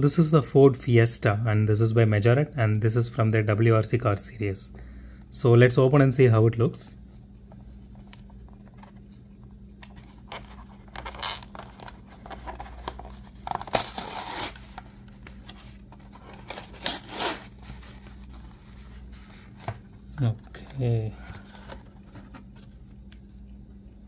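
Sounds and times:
cardboard tearing: 10.4 - 15.0, 16.0 - 18.9.

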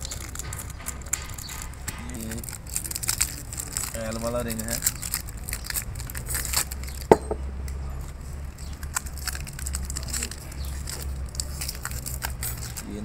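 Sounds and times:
metal rings clicking and rattling: 8.6 - 12.9.

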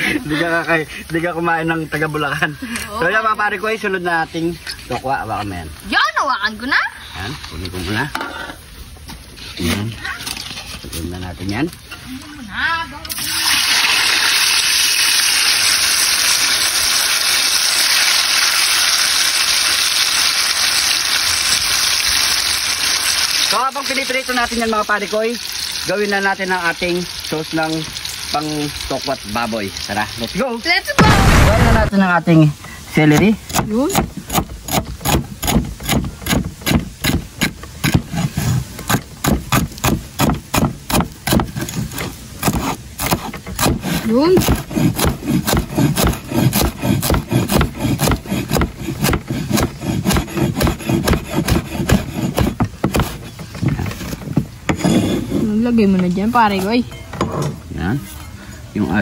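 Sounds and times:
tofu sizzling in hot oil: 13.1 - 31.0
cleaver chopping on wooden board: 33.1 - 53.3.

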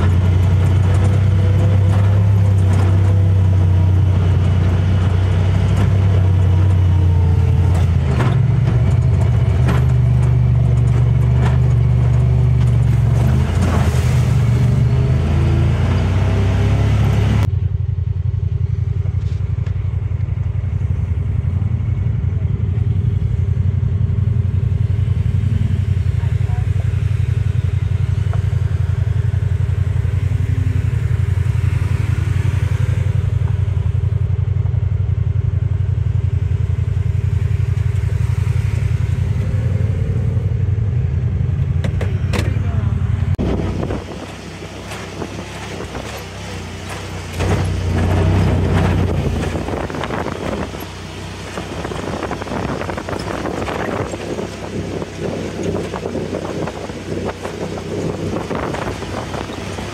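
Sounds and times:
tyres rattling on gravel: 0.0 - 15.2, 41.2 - 59.9
vehicle engine drone: 0.0 - 59.9.

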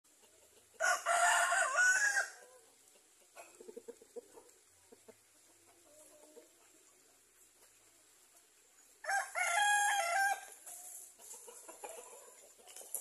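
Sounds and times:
chicken clucking: 0.1 - 13.0
rooster crowing: 0.8 - 2.4, 9.0 - 10.5.

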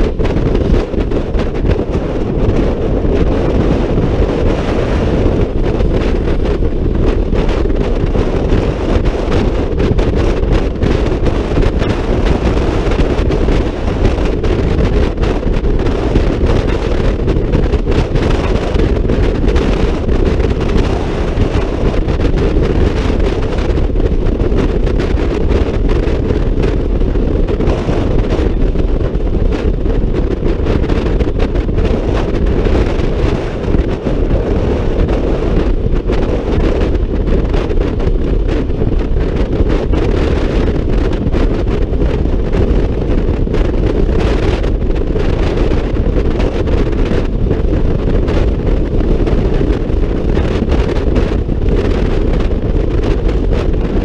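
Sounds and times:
road noise: 0.0 - 54.0
wind buffeting microphone: 0.0 - 54.0.

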